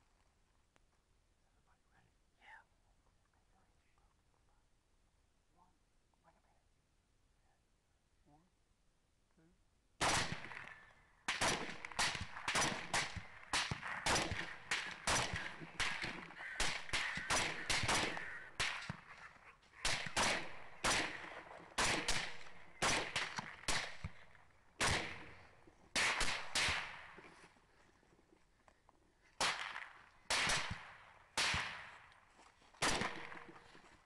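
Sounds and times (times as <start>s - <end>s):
suppressed rifle shots: 10.0s - 19.1s, 19.8s - 27.2s, 29.4s - 32.0s, 32.8s - 33.7s.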